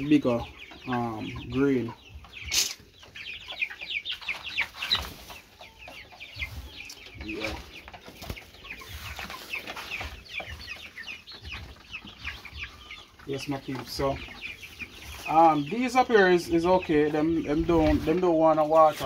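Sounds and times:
chicks peeping: 0.0 - 19.0.

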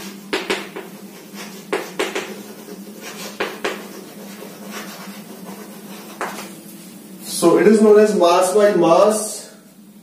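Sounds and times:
chalk tapping on chalkboard: 0.0 - 6.6
chalk scraping: 0.0 - 6.9.

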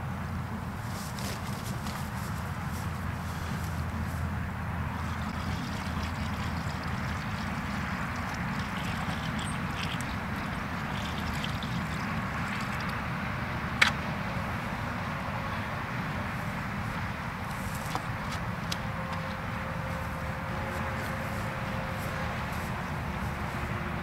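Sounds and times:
water poured into bucket: 5.0 - 13.0.

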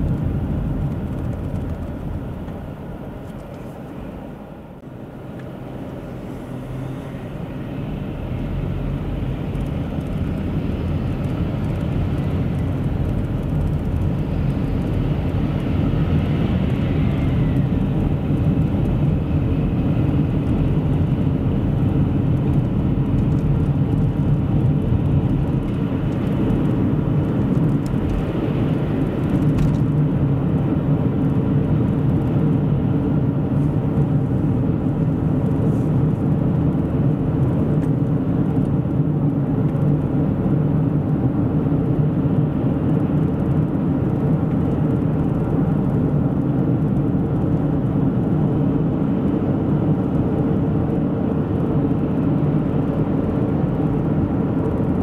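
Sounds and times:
car engine and tyre road noise: 0.0 - 55.0.

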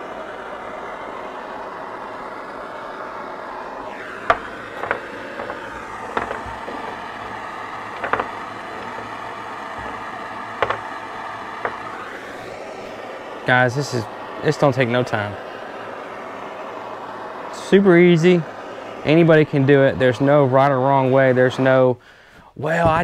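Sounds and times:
propane torch hissing: 0.0 - 22.3
wooden knocks: 4.3 - 7.4, 8.0 - 9.2, 9.8 - 10.9, 11.6 - 11.9.

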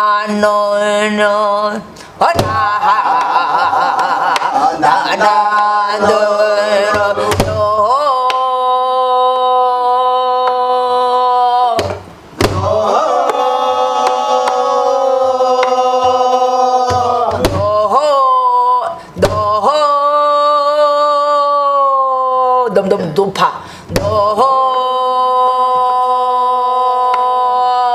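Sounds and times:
stick strikes on barrel drum: 11.8 - 12.7.

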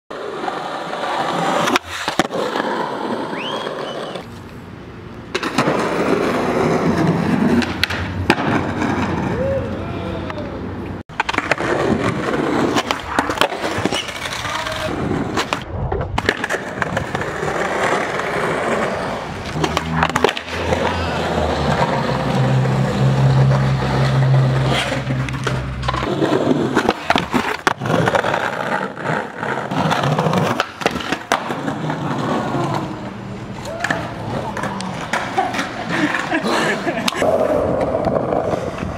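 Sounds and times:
skateboard clacks: 0.1 - 4.3, 5.3 - 38.9
skateboard rolling over concrete: 0.1 - 38.9.

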